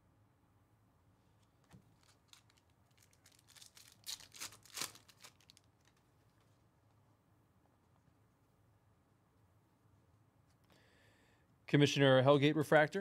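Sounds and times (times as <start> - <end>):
trading cards clicking and rustling: 1.6 - 6.0.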